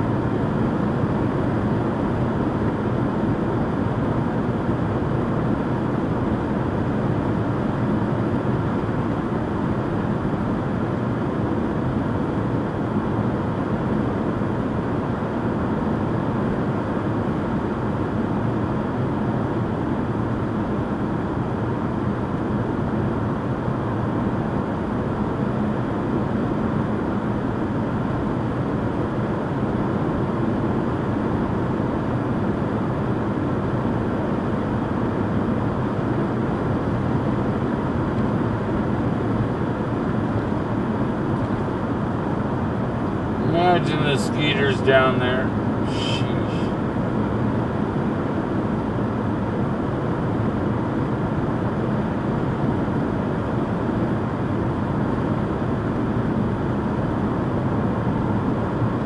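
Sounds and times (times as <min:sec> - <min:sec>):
vehicle cabin road and engine noise: 0:00.0 - 0:59.0.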